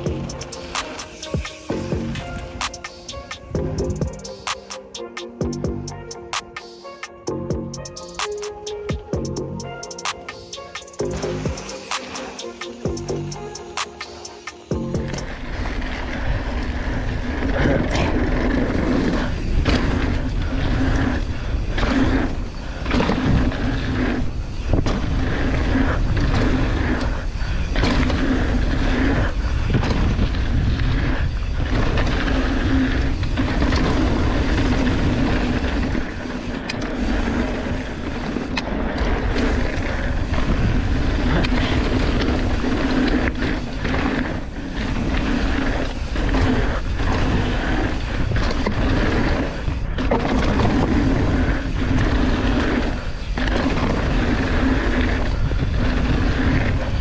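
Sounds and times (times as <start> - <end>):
bike rattling over bumps: 0.0 - 4.9, 8.9 - 57.0
bike tyres rolling on gravel: 0.0 - 4.9, 7.6 - 57.0
wind on microphone: 14.7 - 57.0.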